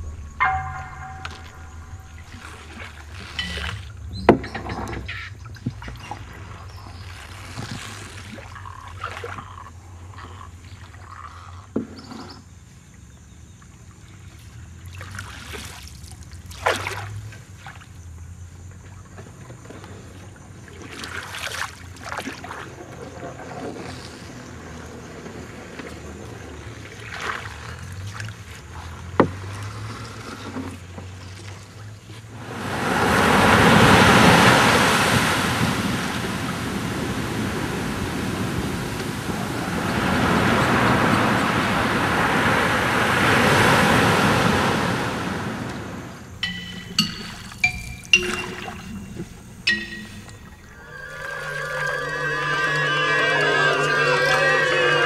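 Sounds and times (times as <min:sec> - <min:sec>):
low rumble: 0:00.0 - 0:04.2
water swishes and splashes: 0:00.0 - 0:12.2, 0:13.7 - 0:55.0.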